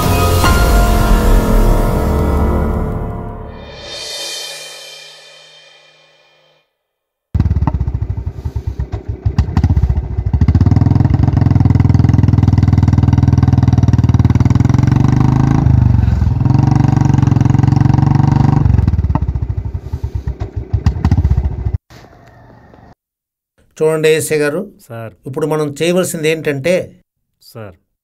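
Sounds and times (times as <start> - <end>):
motorcycle engine running: 7.4 - 21.8.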